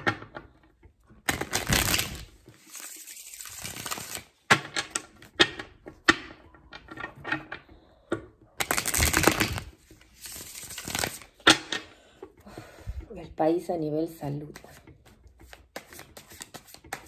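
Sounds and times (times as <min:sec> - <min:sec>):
cards riffle-shuffled: 0:01.3 - 0:05.0, 0:08.6 - 0:11.4, 0:14.5 - 0:17.0
cards sliding hiss: 0:01.6 - 0:04.3, 0:10.1 - 0:11.3.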